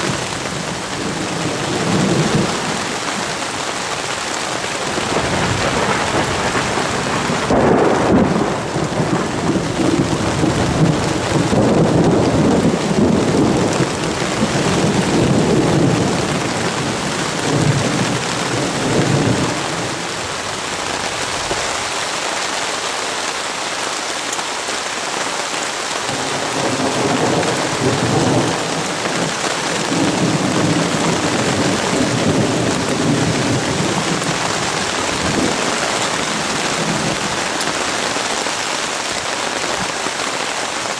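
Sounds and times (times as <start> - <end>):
heavy rain on water and leaves: 0.0 - 40.9
thunder rumbling: 4.6 - 21.8, 26.1 - 39.9.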